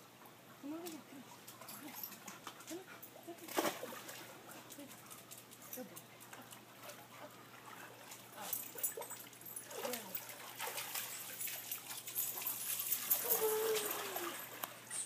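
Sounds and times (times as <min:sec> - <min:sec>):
water splashing and dripping: 0:06.4 - 0:15.0
dog shaking off water: 0:09.7 - 0:14.6.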